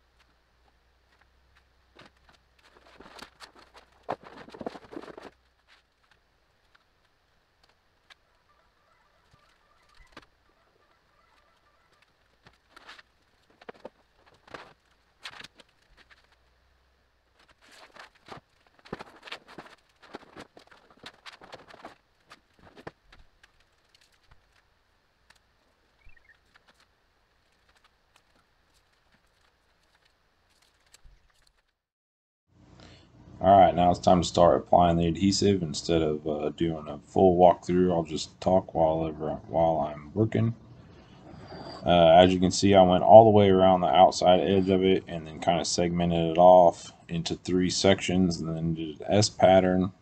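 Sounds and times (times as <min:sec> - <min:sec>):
plastic panel scraping and rustling: 0:01.1 - 0:08.2, 0:11.2 - 0:16.5, 0:17.3 - 0:31.7
plastic panels clicking and rustling: 0:17.4 - 0:25.5.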